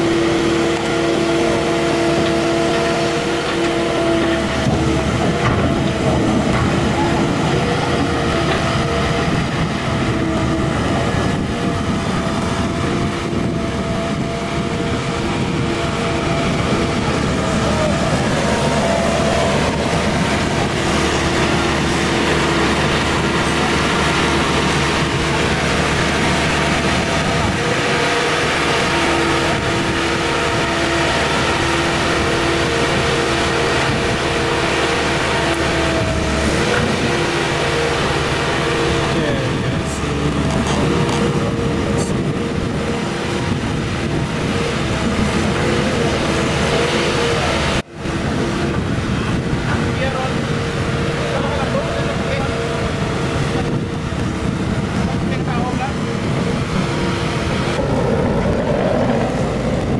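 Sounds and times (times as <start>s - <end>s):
dredger engine running: 0.0s - 59.9s
crawler tracks clattering: 0.6s - 47.7s.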